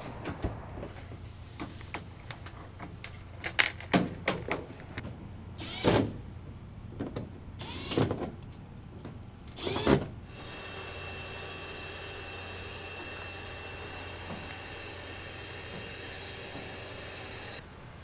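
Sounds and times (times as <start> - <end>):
cordless driver driving screws: 9.6 - 10.1.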